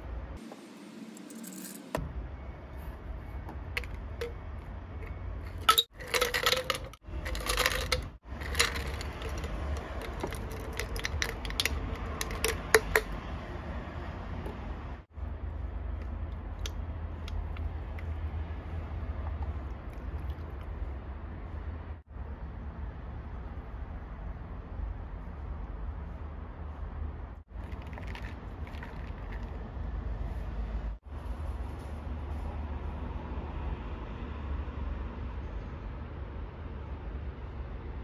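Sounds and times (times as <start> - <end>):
ice cubes clinking in glass: 5.6 - 13.1.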